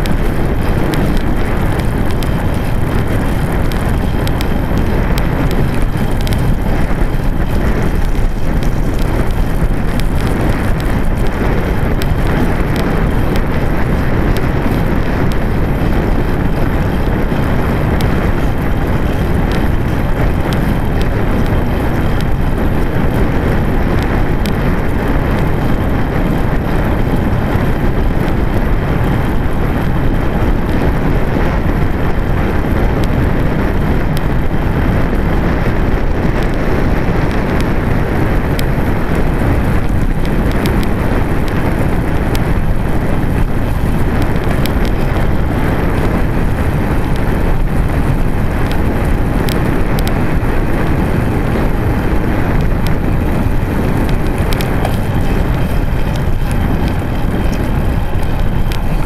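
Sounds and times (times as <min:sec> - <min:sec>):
faint clicks: 0:00.0 - 0:24.8, 0:38.5 - 0:47.2, 0:47.8 - 0:50.2, 0:50.9 - 0:59.0
bike tyres rolling on asphalt: 0:00.0 - 0:59.0
wind noise on microphone: 0:00.0 - 0:59.0.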